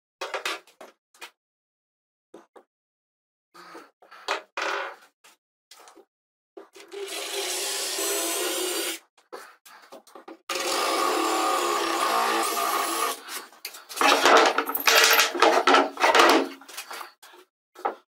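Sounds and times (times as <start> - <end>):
cordless drill boring into wood: 6.9 - 9.0, 10.5 - 13.2
drill bit rasping through wood: 6.9 - 9.0, 10.5 - 13.4.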